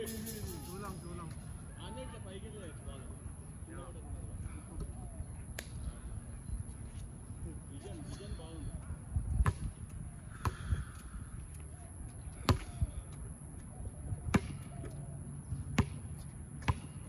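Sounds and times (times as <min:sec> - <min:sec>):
basketball bouncing on hard court: 0:15.8 - 0:17.0.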